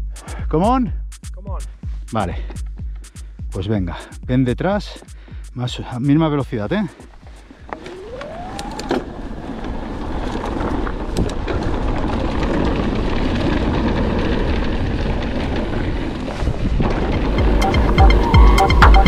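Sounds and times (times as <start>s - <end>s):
bike tyres rolling on dirt: 7.0s - 17.9s
deep rumble: 7.6s - 19.0s
wind rushing over microphone: 7.7s - 18.4s
short rising tone: 7.8s - 9.5s, 17.1s - 19.0s.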